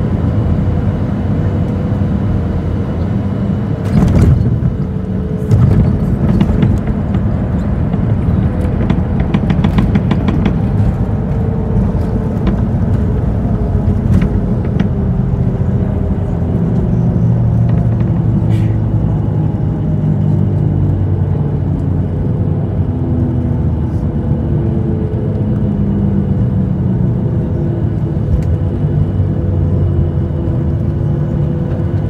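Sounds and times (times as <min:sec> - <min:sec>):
jet engines rumbling: 0:00.0 - 0:32.0
wheels rolling on runway: 0:03.9 - 0:18.4
rapid cabin rattling: 0:03.9 - 0:19.9
wheels thumping onto runway: 0:05.4 - 0:15.0.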